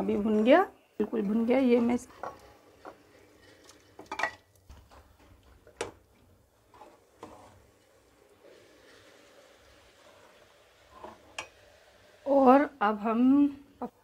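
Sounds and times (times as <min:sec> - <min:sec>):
spoon knocking on steel pots: 0:04.0 - 0:06.0.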